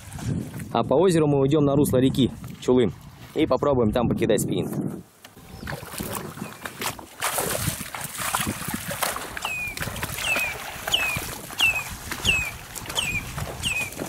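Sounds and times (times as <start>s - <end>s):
water sloshing and splashing: 0.0s - 0.8s, 5.3s - 14.0s.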